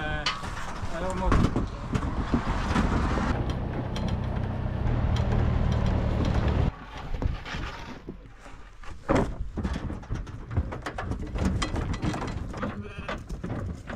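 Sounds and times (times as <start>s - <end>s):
sheep hooves on trailer floor: 1.0s - 6.7s, 9.3s - 13.9s.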